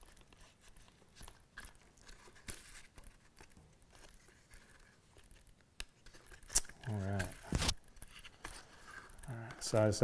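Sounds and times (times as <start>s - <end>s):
hands handling leather rustling: 0.0s - 10.0s.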